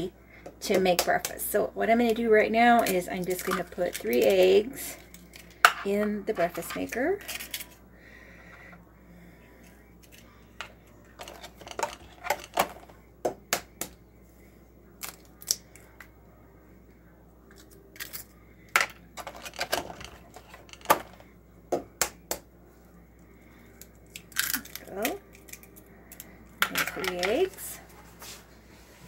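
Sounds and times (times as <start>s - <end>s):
eggshells cracking: 15.0s - 16.0s, 17.5s - 18.3s, 23.8s - 26.3s.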